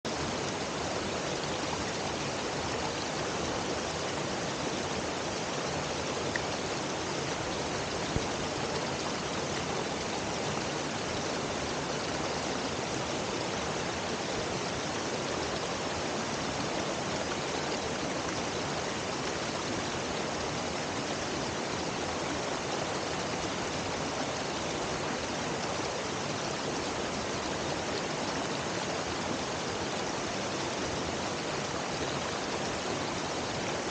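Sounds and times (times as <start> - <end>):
stream pouring over rocks: 0.1 - 33.9.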